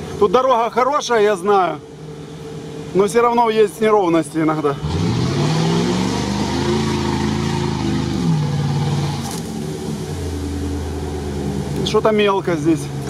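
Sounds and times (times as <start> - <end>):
truck engine revving: 4.5 - 13.0.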